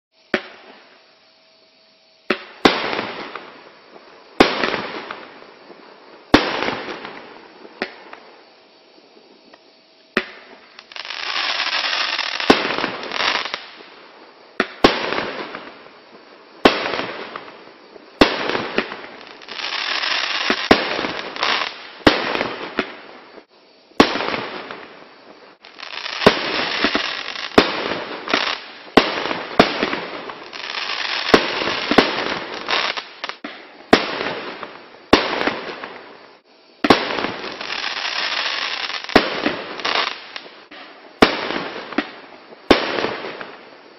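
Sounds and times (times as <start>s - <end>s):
firework hissing and crackling: 0.1s - 43.9s
firework bangs: 2.3s - 3.6s, 10.1s - 13.9s, 16.6s - 43.7s.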